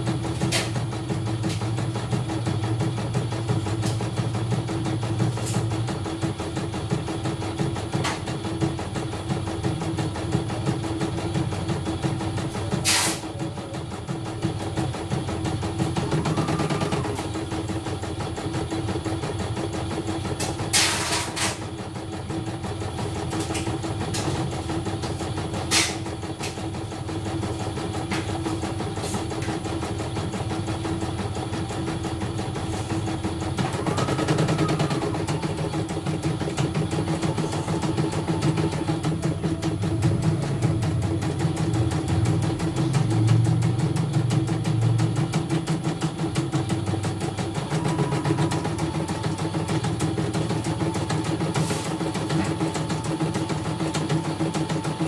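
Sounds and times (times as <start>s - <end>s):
embroidery machine stitching: 29.4s - 55.0s.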